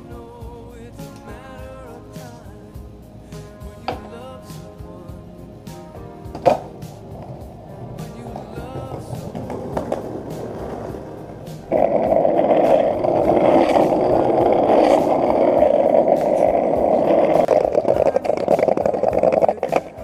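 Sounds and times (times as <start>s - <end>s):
pop song: 0.0s - 20.0s
skateboard wheels rolling on asphalt: 6.1s - 20.0s.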